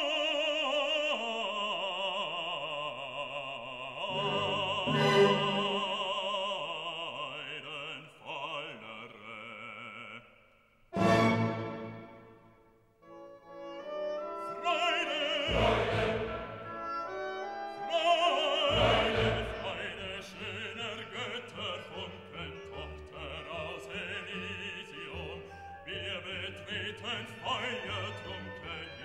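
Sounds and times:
operatic voice singing: 0.0s - 10.4s, 14.3s - 29.0s
orchestra playing: 4.1s - 6.0s, 11.0s - 12.5s, 13.1s - 29.0s.

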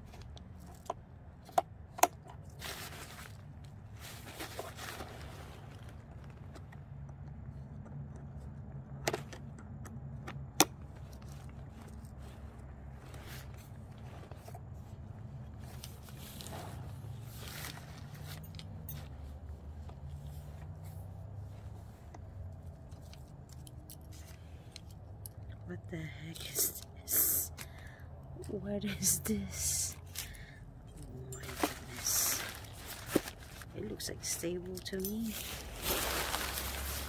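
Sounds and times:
nylon fabric rustling: 2.6s - 6.4s, 31.0s - 37.0s.

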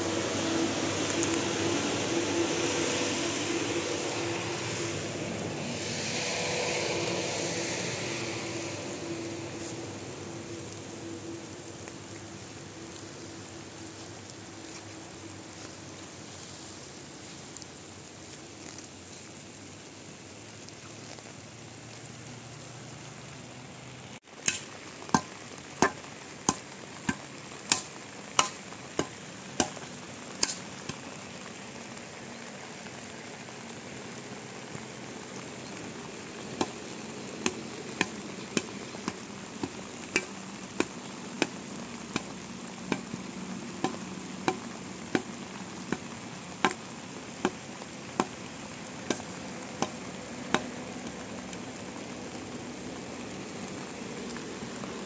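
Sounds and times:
steady rain hiss: 0.0s - 55.0s
hoe striking stony ground: 24.4s - 30.6s, 49.1s - 50.7s.

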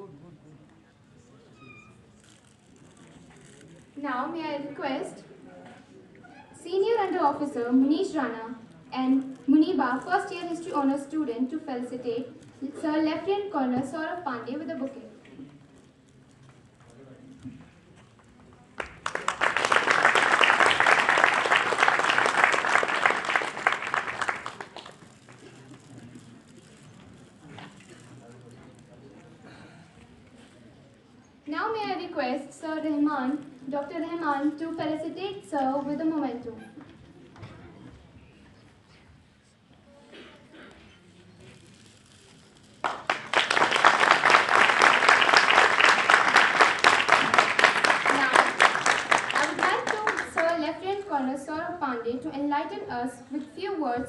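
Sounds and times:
audience applause: 18.8s - 25.6s, 42.8s - 50.5s.

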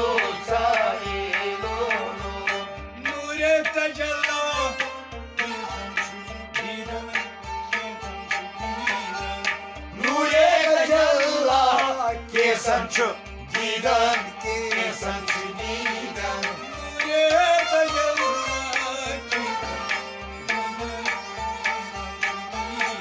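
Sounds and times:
held instrumental tones: 0.0s - 23.0s
voices singing: 0.0s - 23.0s
hand drum beat: 8.6s - 23.0s.

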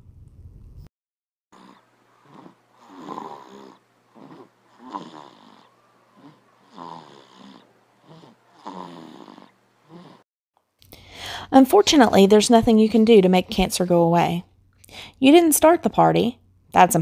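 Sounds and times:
person mock snoring: 1.5s - 10.2s
short breaths: 10.9s - 11.5s, 14.8s - 15.2s.

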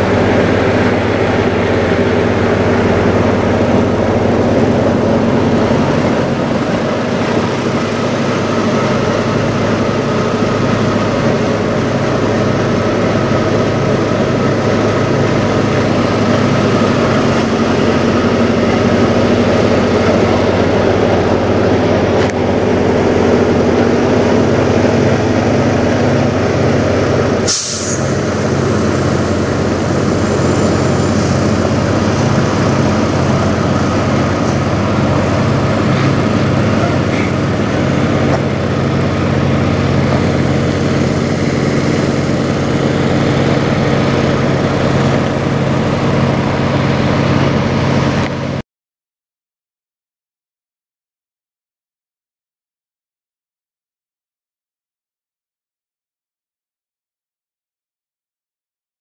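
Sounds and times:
diesel truck engine idling: 0.0s - 48.2s
air brake hiss: 27.4s - 29.1s.

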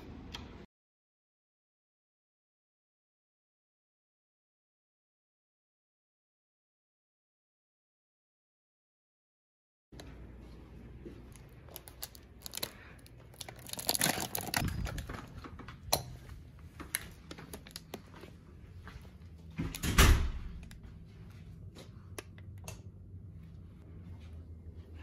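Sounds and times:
paper bag rustling: 11.7s - 15.6s
door opening: 14.6s - 16.1s, 19.5s - 20.8s
door shutting with a thump: 19.6s - 20.6s.

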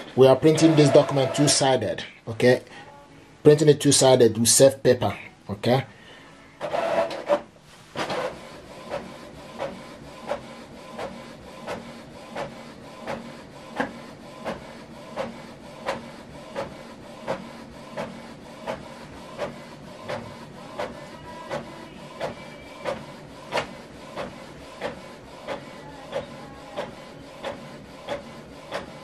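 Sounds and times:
printer mechanical whirr: 0.0s - 2.2s, 6.6s - 29.0s
printer running: 0.0s - 2.6s, 6.6s - 29.0s
sharp printer clicks: 0.3s - 2.0s, 6.6s - 29.0s.

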